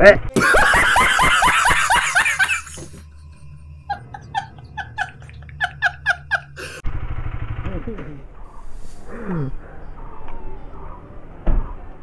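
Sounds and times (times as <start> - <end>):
man laughing: 0.4 - 3.0, 3.8 - 6.8.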